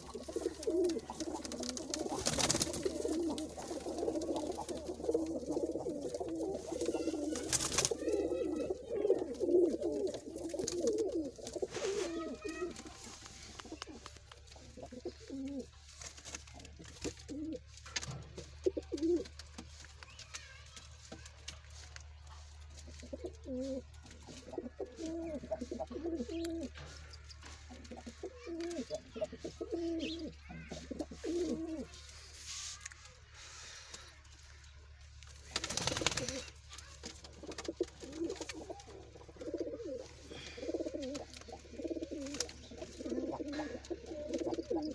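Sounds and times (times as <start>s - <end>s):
pigeons cooing: 0.0s - 15.8s, 16.5s - 17.7s, 18.4s - 19.4s, 22.9s - 32.0s, 35.6s - 36.6s, 37.3s - 44.9s.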